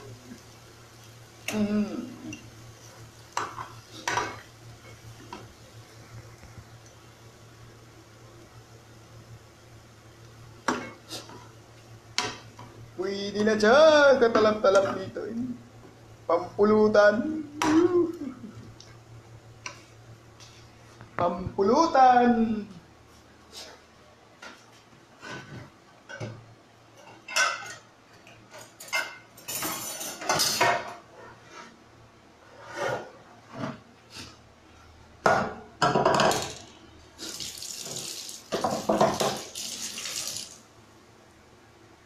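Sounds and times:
dishes and utensils clinking: 27.0s - 31.0s.

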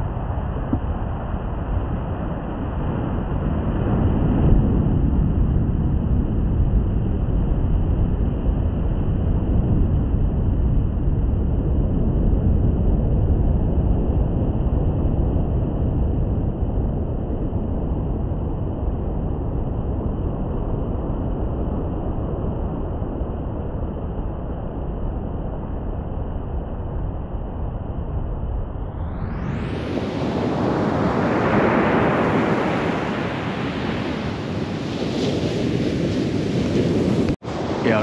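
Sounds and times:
sea waves washing onto beach: 29.8s - 38.0s.

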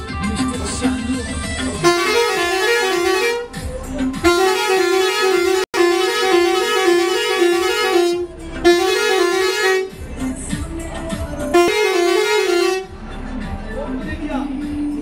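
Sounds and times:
truck musical horn tune: 1.6s - 10.3s, 11.4s - 13.1s.

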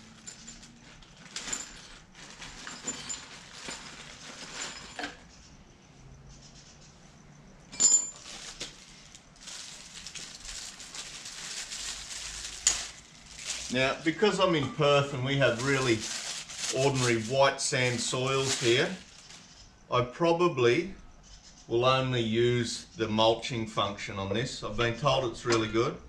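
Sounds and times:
rustling: 0.0s - 5.4s, 7.8s - 14.3s, 15.4s - 19.8s.

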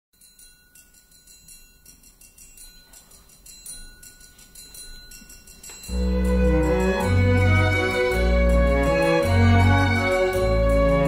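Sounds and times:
held high tone: 2.8s - 11.0s.

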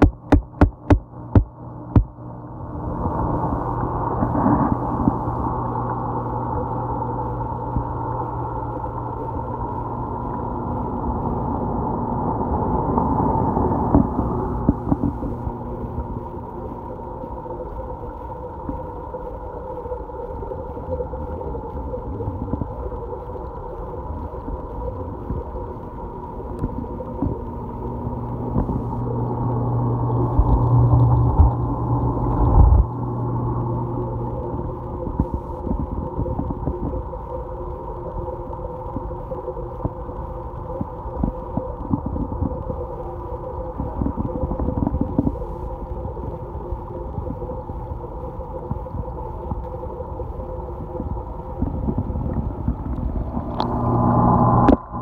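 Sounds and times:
low thumps: 0.0s - 2.2s
muffled underwater pump hum: 0.0s - 55.0s.

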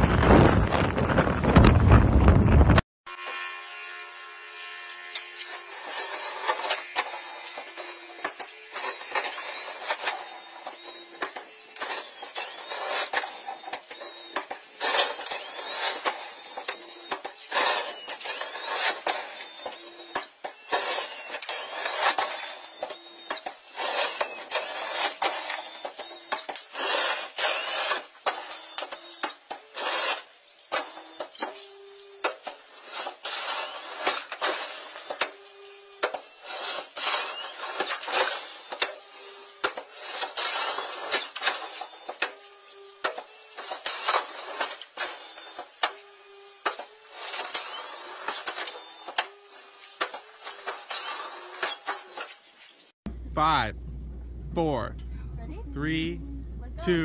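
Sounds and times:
short squeals: 3.1s - 52.9s
metal hull scraping over gravel: 4.8s - 46.1s.

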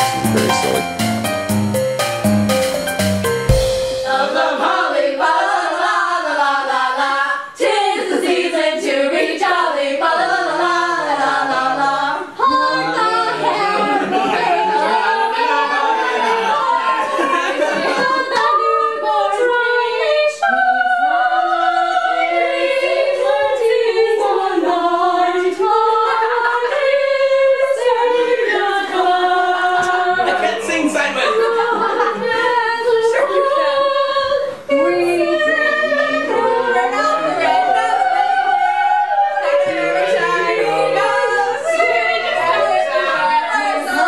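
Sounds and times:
group singing a cappella: 0.0s - 0.9s, 3.6s - 44.0s.

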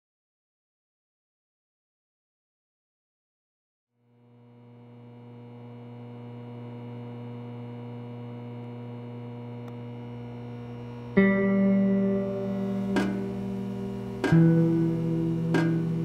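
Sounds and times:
steady low hum with overtones: 4.0s - 16.0s.

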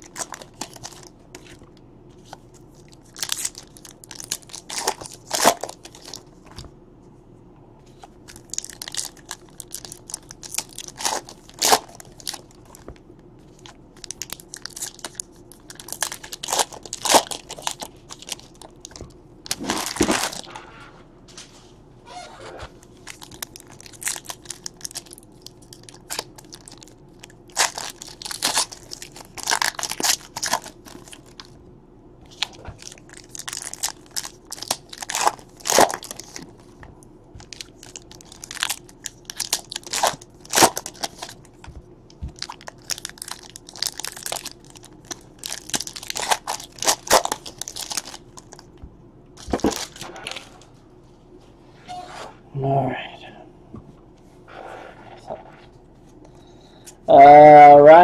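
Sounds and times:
foil wrappers crinkling and tearing: 0.0s - 1.6s, 2.7s - 6.3s, 8.2s - 20.5s, 22.8s - 31.6s, 32.3s - 36.8s, 37.4s - 48.7s, 49.4s - 50.5s.

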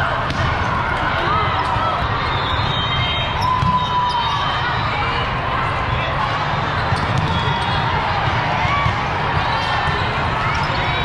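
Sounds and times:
volleyballs being hit and bouncing: 0.0s - 1.8s, 3.5s - 4.0s, 6.6s - 11.0s.

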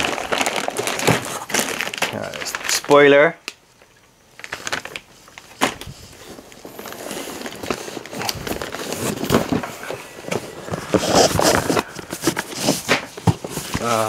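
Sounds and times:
plastic bags crinkling: 0.0s - 14.0s
cardboard boxes scraping and knocking: 5.9s - 14.0s.

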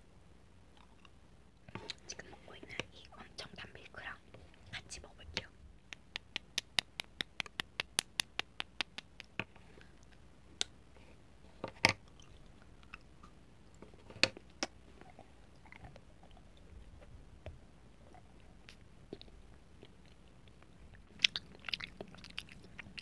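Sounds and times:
soft chewing: 0.7s - 10.3s, 10.9s - 23.0s
chocolate snapping: 5.9s - 9.5s.

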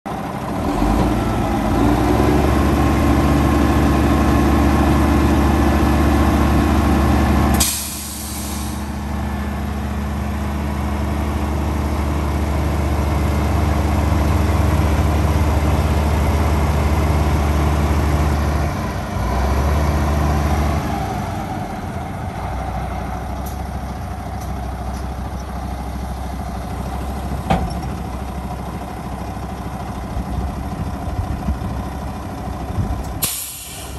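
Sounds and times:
diesel truck engine running: 0.1s - 33.9s
air release hiss: 7.6s - 8.9s, 33.2s - 33.9s.

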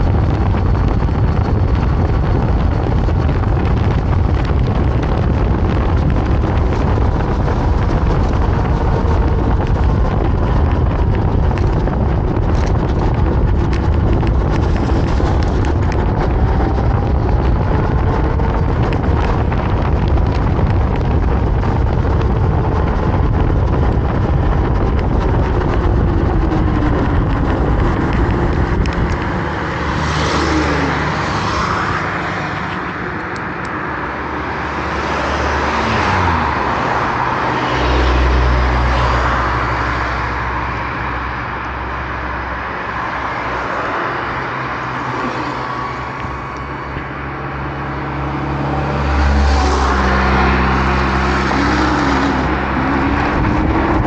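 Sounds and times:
cars passing by: 0.0s - 54.0s
wind buffeting microphone: 0.0s - 54.0s.

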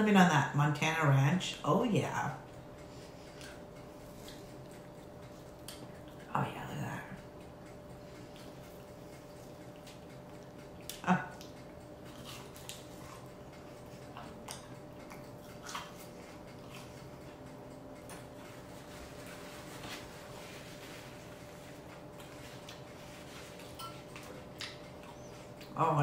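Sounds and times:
faint steady hum: 0.0s - 26.0s
chewing crunchy food: 2.4s - 25.8s.

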